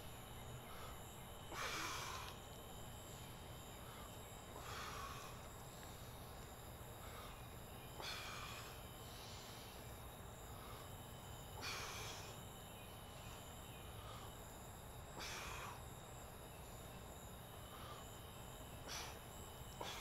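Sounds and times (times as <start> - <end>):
night insects chirring: 0.0 - 20.0
man breathing out hard: 0.6 - 2.5, 3.8 - 5.6, 7.0 - 9.8, 10.4 - 12.4, 15.1 - 15.9, 18.8 - 20.0.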